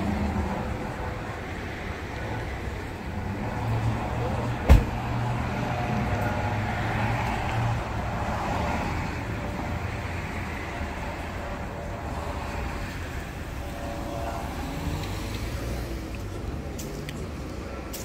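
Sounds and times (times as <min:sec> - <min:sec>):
street traffic: 0:00.0 - 0:18.0
car door slamming: 0:04.6 - 0:05.0.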